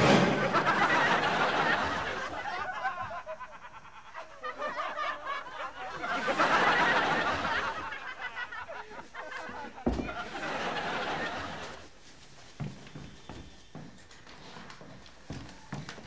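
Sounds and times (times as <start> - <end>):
audience laughter: 0.0 - 11.9.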